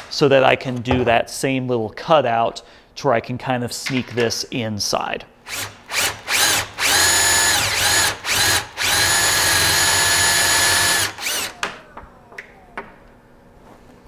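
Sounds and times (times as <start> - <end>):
cordless drill motor whine: 5.5 - 13.1.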